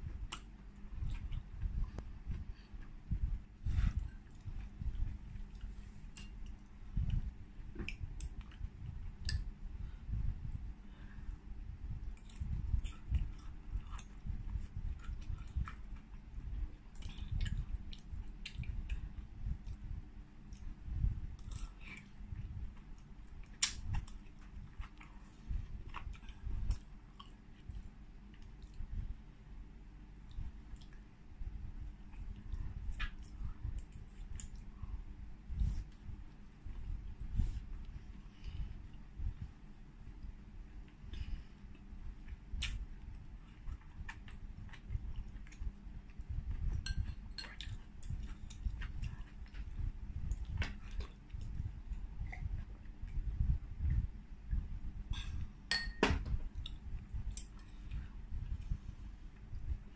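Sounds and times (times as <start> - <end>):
chewing with wet mouth clicks: 0.1 - 3.0, 3.9 - 9.6, 12.0 - 29.0, 30.2 - 31.1, 32.0 - 34.8, 40.2 - 54.6, 56.5 - 59.7.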